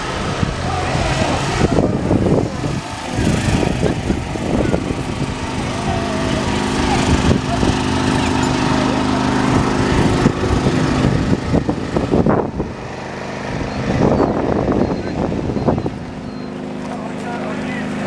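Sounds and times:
small engine running: 0:00.0 - 0:18.0
people talking: 0:00.4 - 0:10.7, 0:14.6 - 0:18.0.

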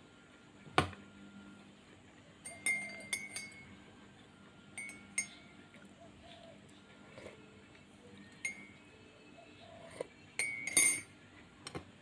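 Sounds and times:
teaspoon clinking in a mug: 0:02.4 - 0:03.7, 0:04.7 - 0:05.6, 0:08.3 - 0:08.9, 0:09.9 - 0:11.8.

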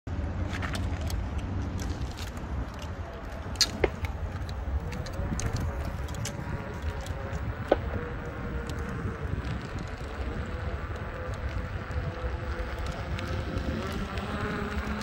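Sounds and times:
wheel rumble on asphalt: 0:00.1 - 0:15.0
wind rushing over microphone: 0:00.1 - 0:15.0
faint electric motor whine: 0:03.0 - 0:15.0.

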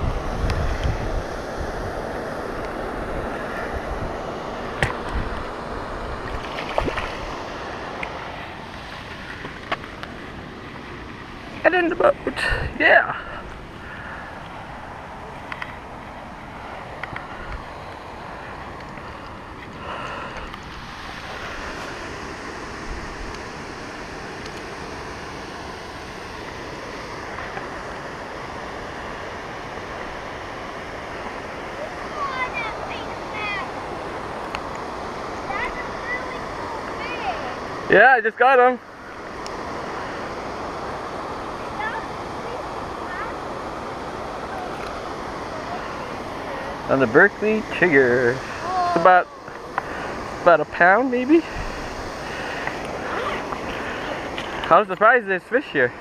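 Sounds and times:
wind buffeting microphone: 0:00.0 - 0:08.0.

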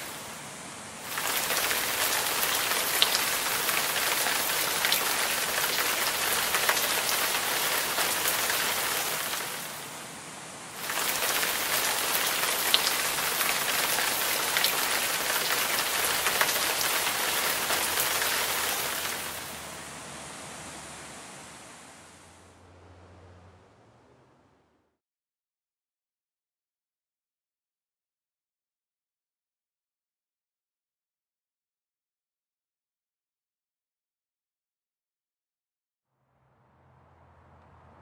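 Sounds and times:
water pouring and splashing: 0:01.0 - 0:09.8, 0:10.8 - 0:19.8.

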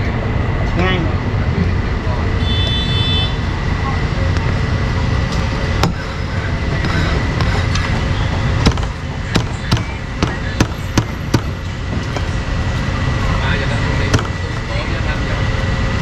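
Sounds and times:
street traffic: 0:00.0 - 0:16.0
cleaver chopping meat: 0:08.6 - 0:11.6.

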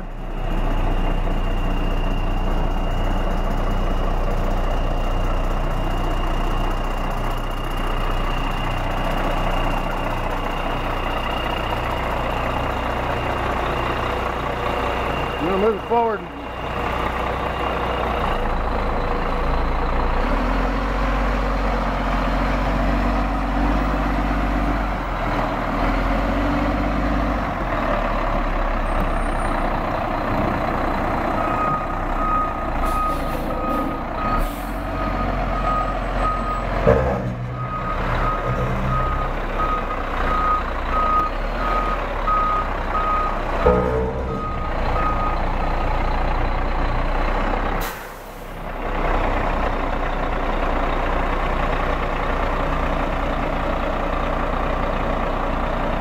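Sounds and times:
garbage truck diesel engine: 0:00.0 - 0:56.0
backup alarm beeping: 0:37.6 - 0:45.6.

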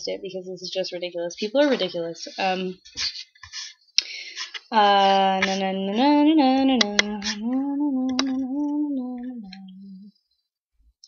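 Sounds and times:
woman singing wordless note: 0:04.9 - 0:10.1
sharp clicks: 0:06.8 - 0:07.4, 0:08.0 - 0:08.4.

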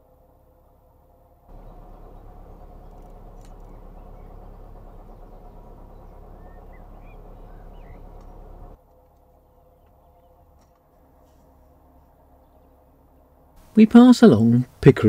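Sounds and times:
diesel engine humming: 0:00.2 - 0:15.0
faint bird chirps: 0:01.5 - 0:13.4.

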